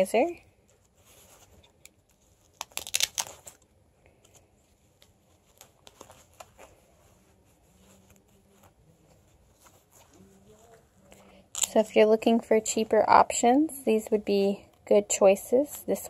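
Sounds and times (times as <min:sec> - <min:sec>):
fabric pouch rustling: 0:00.2 - 0:11.9.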